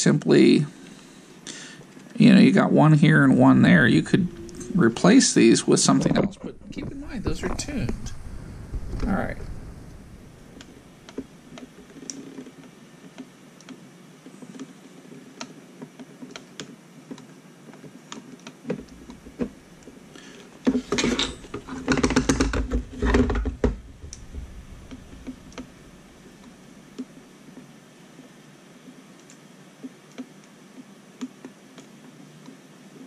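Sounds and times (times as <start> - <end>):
rapid knocks and rattles: 20.6 - 27.1.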